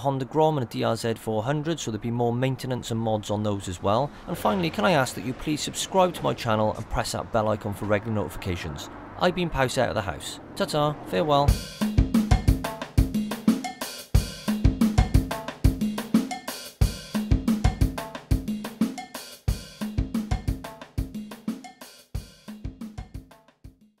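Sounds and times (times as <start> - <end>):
repeating bass line: 11.5 - 13.4
drum kit beat: 11.5 - 24.0.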